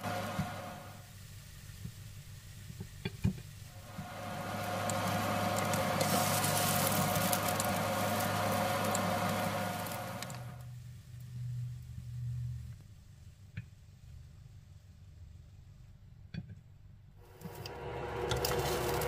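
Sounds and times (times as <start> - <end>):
food sizzling in hot oil: 0.0 - 10.6, 17.3 - 19.0.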